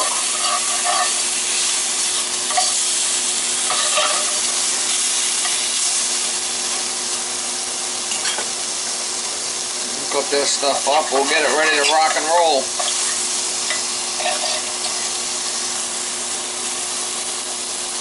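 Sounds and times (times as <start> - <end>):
metal spatula scraping: 0.0 - 1.3, 3.7 - 4.6, 10.8 - 12.2, 12.8 - 15.1
steak sizzling in a skillet: 0.0 - 18.0.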